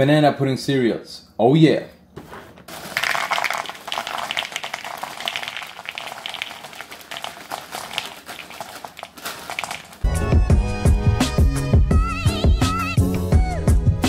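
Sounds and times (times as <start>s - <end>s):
cereal poured into plastic bowl: 2.7s - 10.0s.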